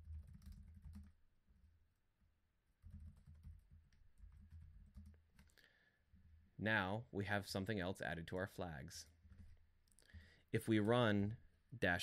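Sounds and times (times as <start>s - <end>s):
faint keyboard typing: 0.0s - 6.4s, 8.3s - 10.6s.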